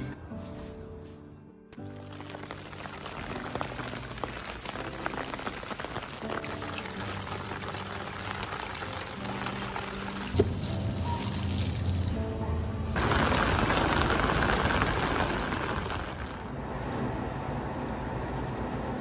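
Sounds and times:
steady rain: 1.9 - 10.8, 13.0 - 16.5.

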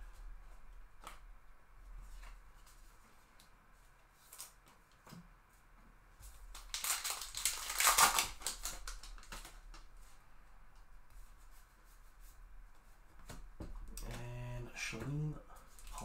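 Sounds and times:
wrapper crinkling and tearing: 6.5 - 9.8.

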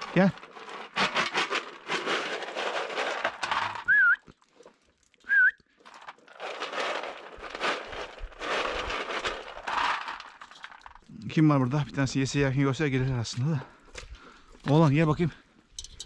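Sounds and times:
rustling: 0.0 - 4.9, 5.8 - 11.1
person whistling warbling calls: 3.8 - 4.2, 5.3 - 5.6.

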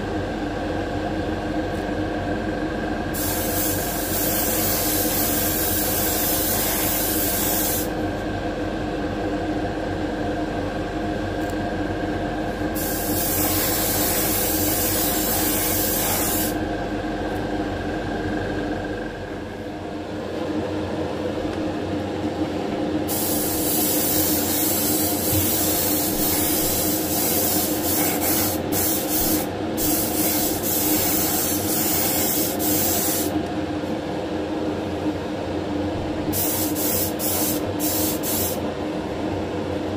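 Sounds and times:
steady hum: 0.0 - 39.9
paint spray gun hissing: 3.2 - 7.9, 12.8 - 16.6, 23.1 - 33.3, 36.3 - 38.6.

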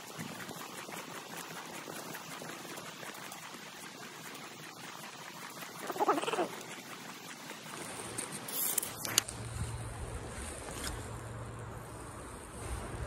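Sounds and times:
creek water rushing: 0.0 - 12.2
wavering squeal-like cry: 5.8 - 6.6.

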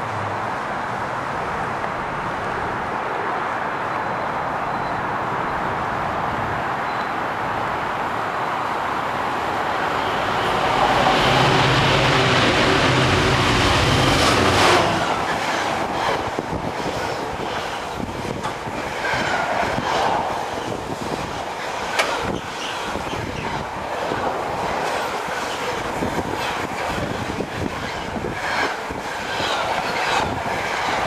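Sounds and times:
locomotive hum: 6.9 - 31.0
train wagons rumbling: 8.0 - 31.0
wheels clicking on track: 10.7 - 31.0.

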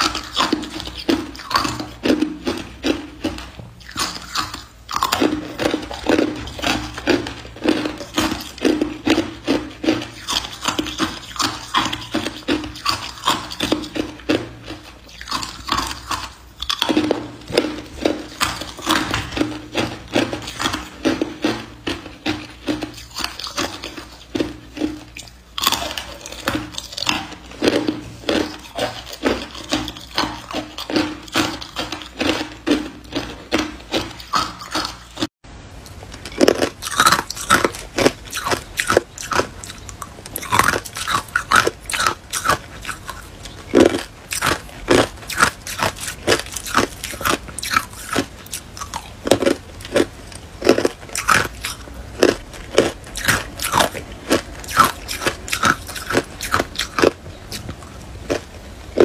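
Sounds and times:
ice being chewed: 0.0 - 59.0.

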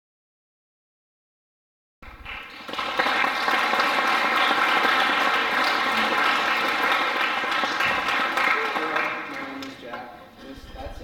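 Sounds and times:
audience applauding: 2.0 - 9.9.

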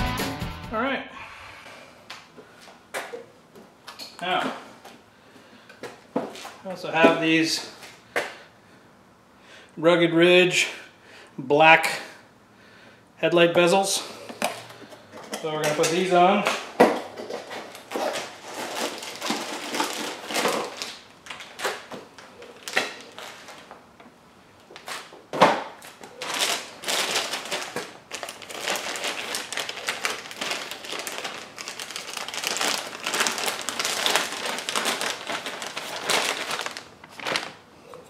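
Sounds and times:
plastic bag crinkling: 17.2 - 23.8, 25.8 - 38.0.

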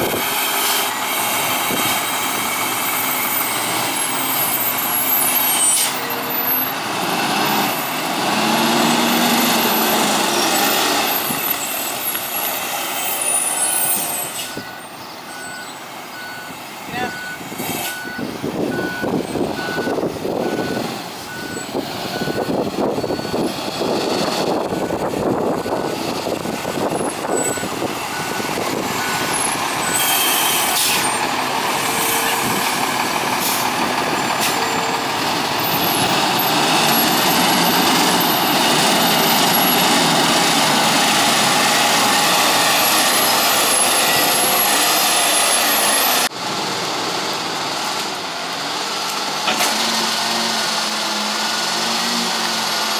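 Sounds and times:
diesel truck engine running: 0.0 - 52.9
reverse alarm beeping: 13.6 - 23.5.

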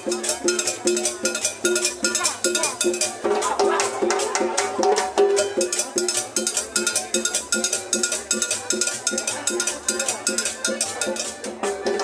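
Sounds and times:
sharp percussion strikes: 0.0 - 12.0.

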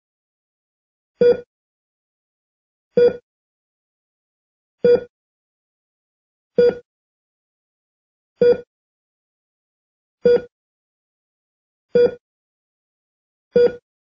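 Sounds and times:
heart monitor beeping: 1.2 - 1.5, 3.0 - 3.2, 4.8 - 5.1, 6.6 - 6.9, 8.4 - 8.7, 10.2 - 10.5, 11.9 - 12.2, 13.6 - 13.8.

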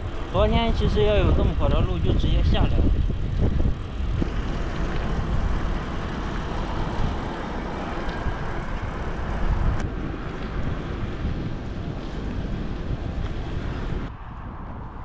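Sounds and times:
bicycle tyres on asphalt: 0.0 - 15.0
wind rush on microphone: 0.0 - 15.0.

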